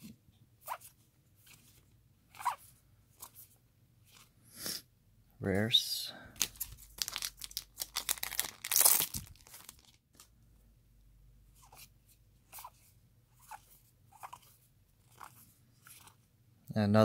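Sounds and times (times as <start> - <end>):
foil pack crinkling rip: 6.4 - 10.0.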